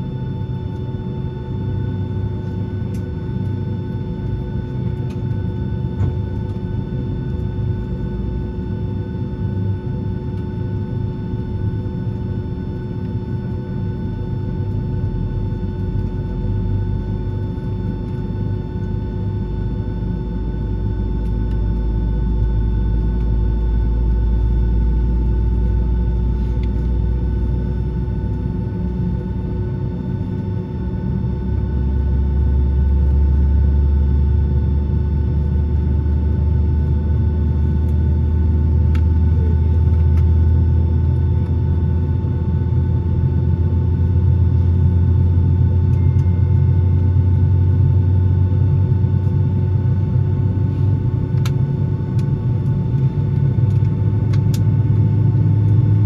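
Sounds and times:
aircraft cabin whining tones: 0.2s - 11.1s, 34.8s - 56.0s.

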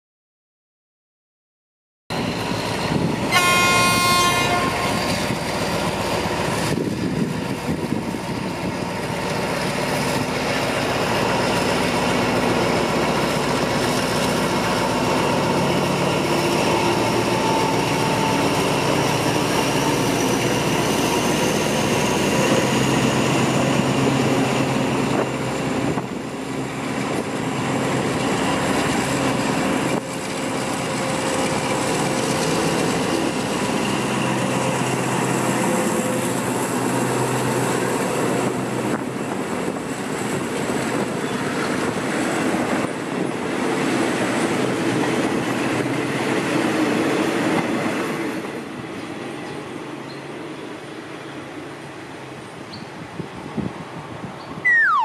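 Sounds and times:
locomotive engine running: 2.1s - 40.8s
train horn blast: 3.2s - 5.3s
train wheels rolling: 4.0s - 51.8s.

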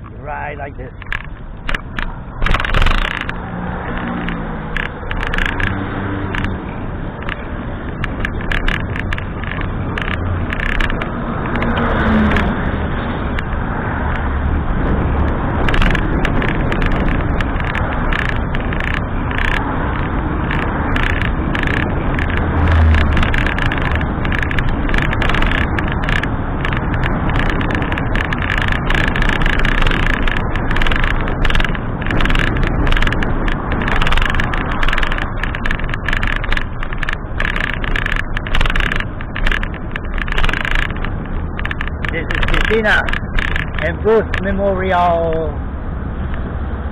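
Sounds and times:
low wind buffet: 0.0s - 46.9s
road noise: 0.0s - 46.9s
wind rushing on microphone: 0.0s - 46.9s.

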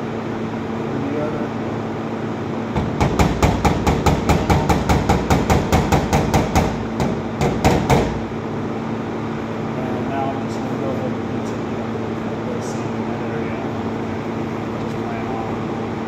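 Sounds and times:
hammer tapping on sheet metal: 2.8s - 8.3s.

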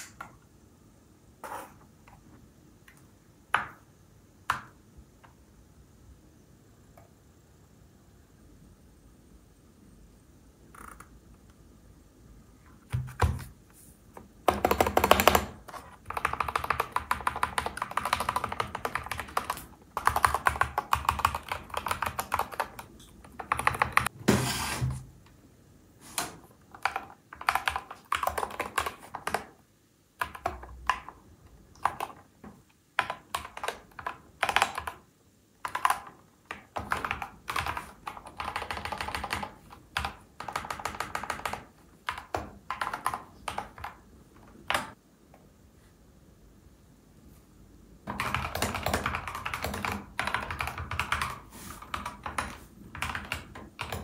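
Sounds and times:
mechanical keyboard typing: 14.4s - 24.1s, 26.7s - 29.6s, 30.2s - 32.3s, 33.0s - 45.0s, 48.1s - 54.0s.

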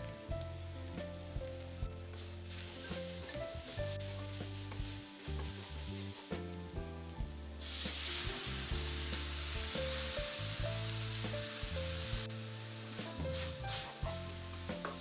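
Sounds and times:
background music: 0.0s - 15.0s
onions frying in hot oil: 0.0s - 15.0s
water hissing in hot oil: 0.1s - 15.0s
metal spatula stirring: 2.1s - 6.4s.

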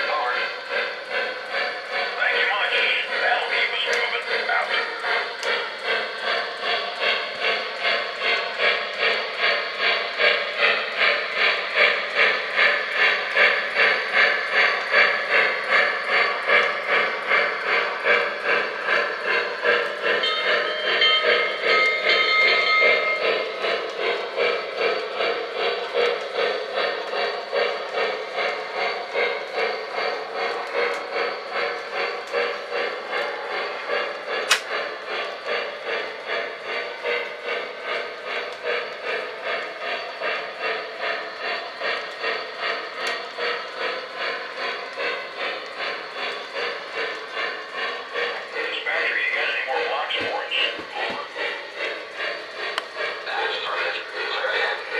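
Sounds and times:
model steam locomotive chuffing: 0.0s - 54.9s
sharp click: 34.4s - 34.7s.

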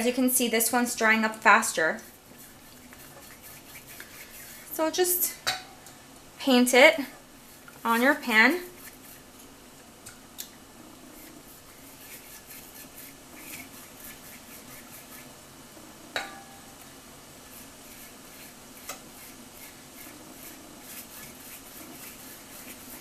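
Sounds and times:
pastry brush brushing a skillet: 0.0s - 5.6s, 6.4s - 9.6s, 11.0s - 15.6s, 16.2s - 23.0s
knock on pan: 16.2s - 16.6s.

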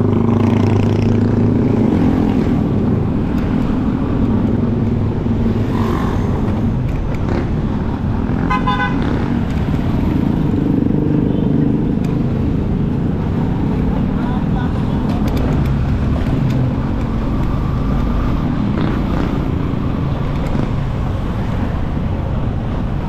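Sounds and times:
road noise: 0.0s - 23.0s
vehicle horn toot: 8.5s - 9.1s.

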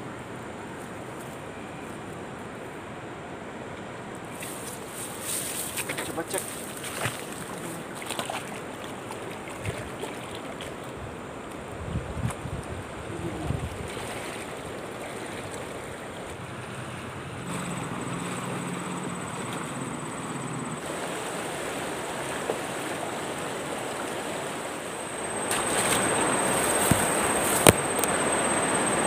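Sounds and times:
river water rushing: 0.1s - 11.8s, 12.8s - 29.0s
hands splashing in water: 5.6s - 10.9s.

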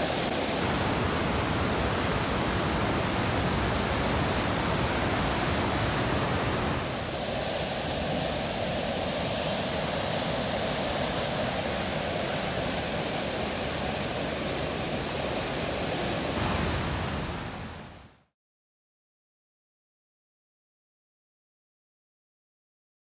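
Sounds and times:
river rushing through rapids: 0.0s - 18.2s.

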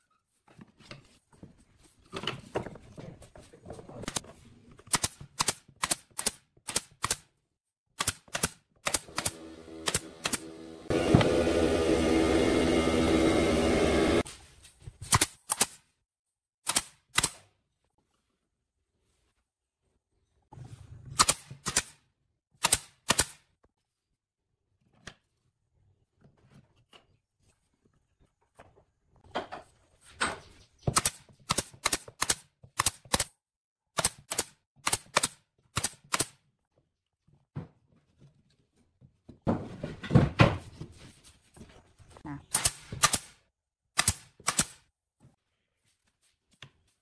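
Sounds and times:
nail gun firing into boards: 8.0s - 10.5s, 16.6s - 17.4s, 22.6s - 23.4s, 30.9s - 33.3s, 34.0s - 36.4s, 42.5s - 43.4s, 44.0s - 44.9s.

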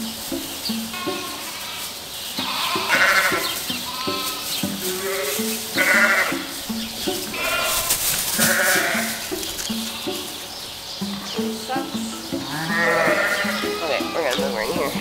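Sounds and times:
background music: 0.0s - 15.0s
sheep bleating: 0.8s - 6.5s, 7.2s - 10.4s, 12.4s - 15.0s.

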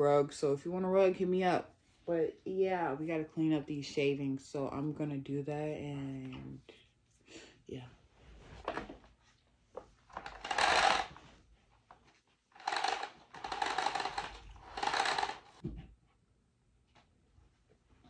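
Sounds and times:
power cord scraping off hooks: 10.2s - 11.2s.

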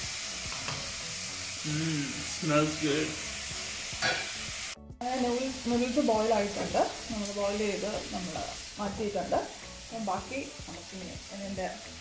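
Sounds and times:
onions sizzling in a pan: 0.0s - 12.0s.

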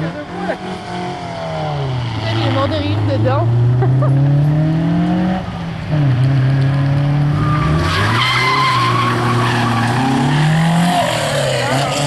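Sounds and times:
car engine under load: 0.0s - 12.0s
tyres squealing: 7.4s - 12.0s.

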